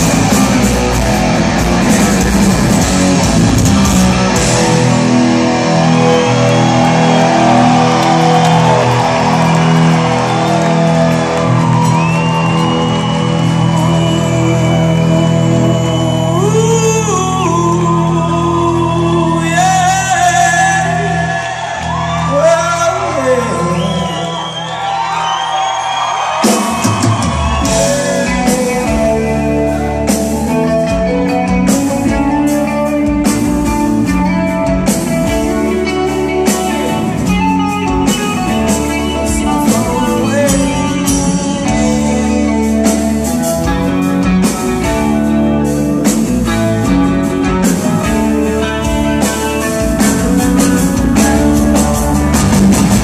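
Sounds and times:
live rock band: 0:00.0 - 0:53.0.

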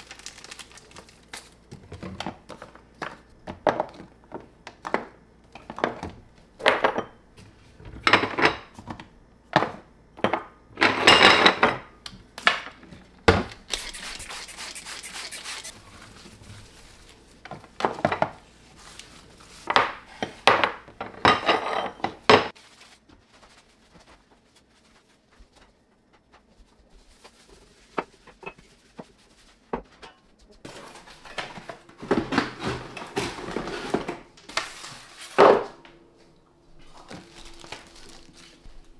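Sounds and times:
bottles and jars clinking on tiles: 0:10.2 - 0:11.9, 0:19.7 - 0:22.5.

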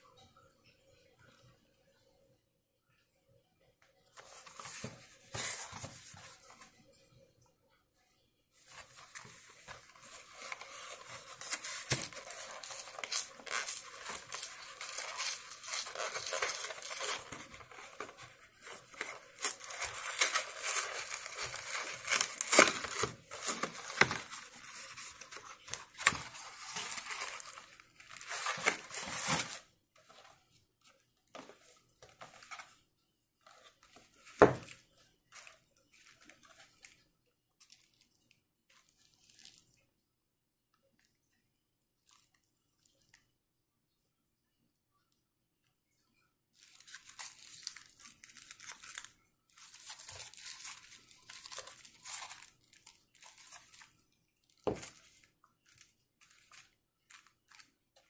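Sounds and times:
cardboard box tearing and crinkling: 0:08.8 - 0:29.6, 0:49.6 - 0:52.5.

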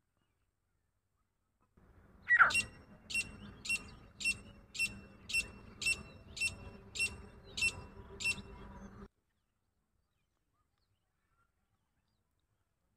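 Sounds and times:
francolin calling: 0:02.2 - 0:09.1.

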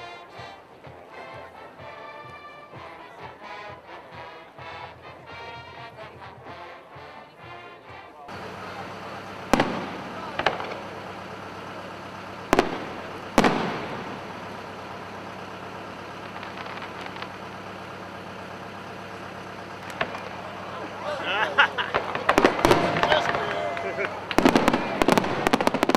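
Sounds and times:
faint crackling: 0:08.3 - 0:25.9
fireworks booming: 0:08.3 - 0:25.9
steady low hum: 0:08.3 - 0:25.9.

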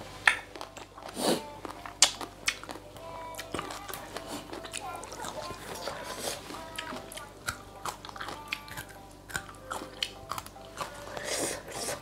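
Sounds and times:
crunchy vegetable chewing: 0:00.0 - 0:12.0
wet mouth clicks: 0:00.3 - 0:02.8, 0:06.8 - 0:12.0.

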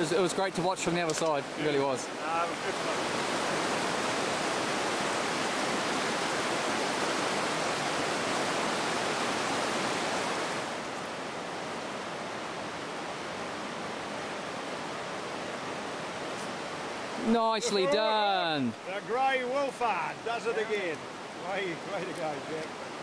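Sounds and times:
river water rushing over stones: 0:00.0 - 0:23.0.

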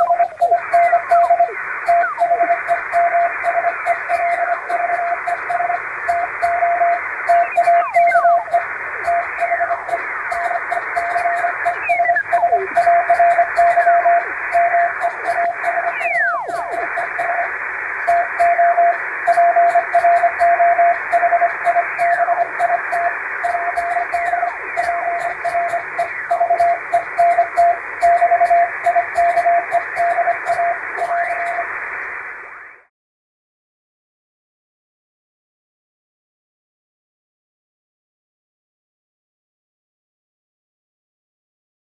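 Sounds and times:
falling whistles: 0:00.0 - 0:31.6
morse code beeps: 0:00.0 - 0:31.6
shortwave radio hiss: 0:00.0 - 0:32.9.

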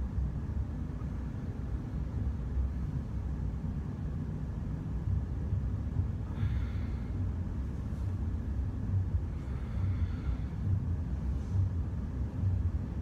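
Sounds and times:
low room rumble: 0:00.0 - 0:13.0
short breath: 0:06.3 - 0:07.2.

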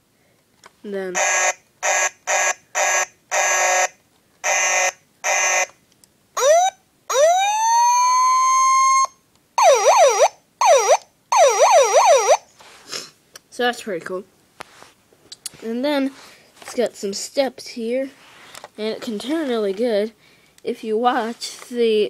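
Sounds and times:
toy buzzing horn blasts: 0:01.1 - 0:05.7, 0:07.6 - 0:09.1
toy siren winding up: 0:01.2 - 0:05.8, 0:06.4 - 0:12.4
fast warbling siren: 0:06.4 - 0:12.4.

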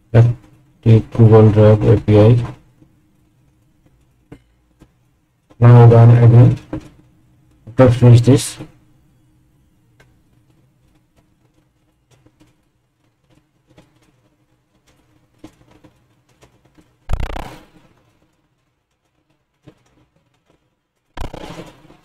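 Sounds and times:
computer mouse clicks: 0:17.1 - 0:17.6, 0:21.2 - 0:21.8.

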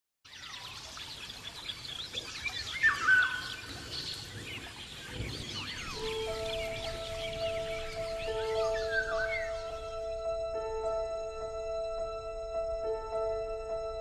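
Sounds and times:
small birds chirping: 0:00.3 - 0:11.8
loud whistled bird call: 0:05.1 - 0:09.9
held music notes: 0:05.9 - 0:14.0.

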